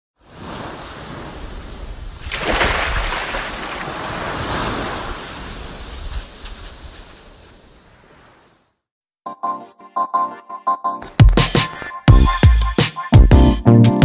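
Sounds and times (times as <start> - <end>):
ocean surf: 0.2 - 8.7
wave breaking: 0.3 - 8.6.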